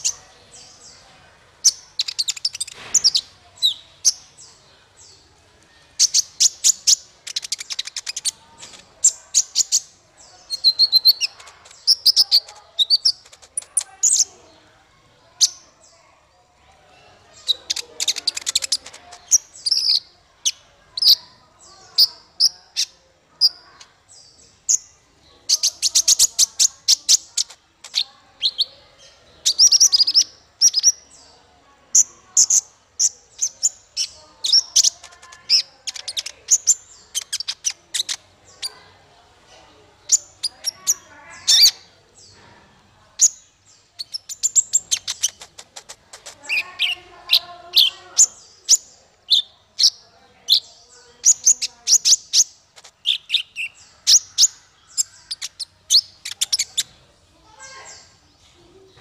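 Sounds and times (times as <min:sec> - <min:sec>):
sunbird singing high chirps: 0:00.0 - 0:05.2, 0:06.0 - 0:14.3, 0:17.2 - 0:31.3, 0:43.2 - 0:57.0
bird sharp rapid ticks: 0:06.1 - 0:09.0, 0:11.1 - 0:13.9, 0:44.1 - 0:46.6.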